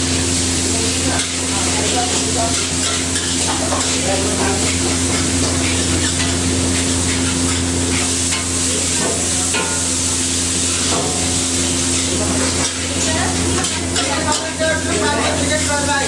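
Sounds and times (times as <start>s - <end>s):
rice sizzling in a wok: 0.0s - 16.0s
metal ladle scraping a wok: 2.5s - 8.5s.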